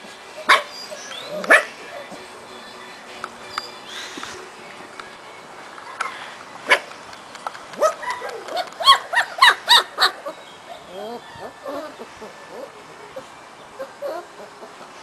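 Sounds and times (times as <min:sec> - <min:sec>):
puppies yelping and squealing: 0:00.4 - 0:02.1, 0:07.8 - 0:15.0.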